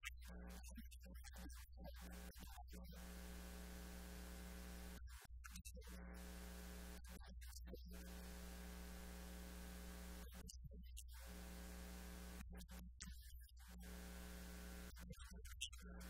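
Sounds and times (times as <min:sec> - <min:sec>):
electrical mains hum: 0:05.8 - 0:07.1, 0:07.9 - 0:10.4, 0:11.2 - 0:13.0, 0:13.8 - 0:15.0.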